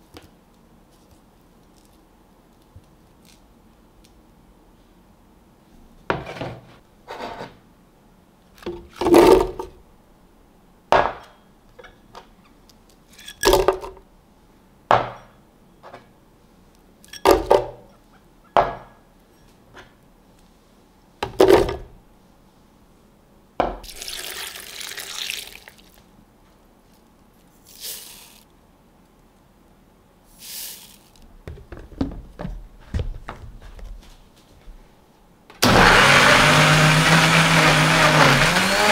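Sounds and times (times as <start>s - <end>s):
seeds poured hissing: 23.9s - 26.0s, 27.6s - 28.5s, 30.3s - 31.2s.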